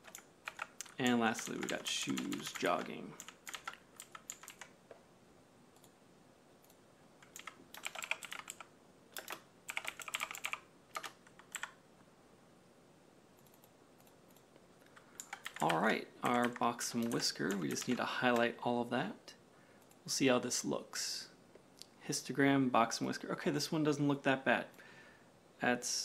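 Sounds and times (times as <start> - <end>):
computer keyboard typing: 0.0 - 4.8, 6.6 - 11.8, 13.4 - 14.4, 15.0 - 18.5.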